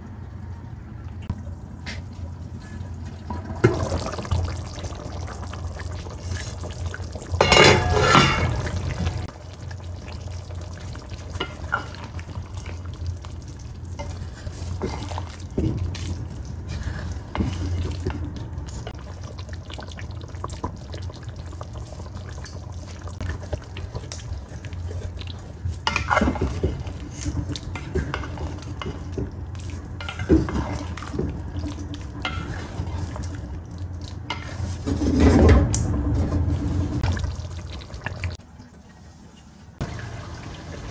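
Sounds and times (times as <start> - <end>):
gravy simmering in a pot: 0.0 - 40.9.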